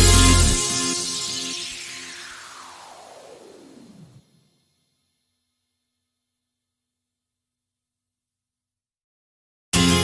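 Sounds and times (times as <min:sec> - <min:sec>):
falling synth sweep: 0:00.0 - 0:04.9.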